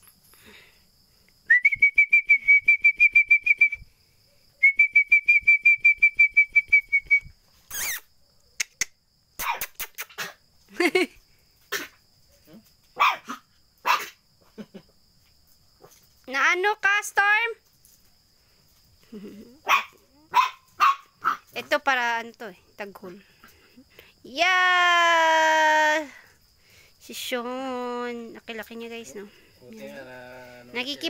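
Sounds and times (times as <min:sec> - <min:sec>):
trilled whistles: 0:01.4 - 0:03.9, 0:04.6 - 0:08.1
puppy barking: 0:09.4 - 0:10.4, 0:13.0 - 0:14.2, 0:19.6 - 0:21.5.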